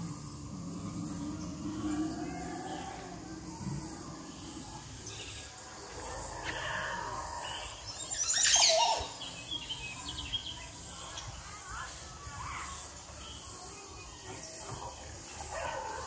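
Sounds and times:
birds calling: 0.0s - 11.4s.

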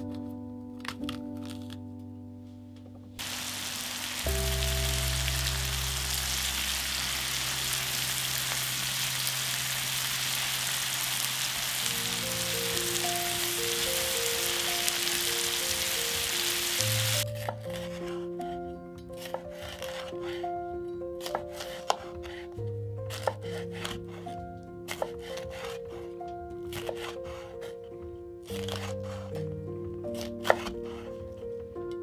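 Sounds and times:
background music: 0.0s - 32.0s
onions sizzling in a pan: 3.2s - 17.2s.

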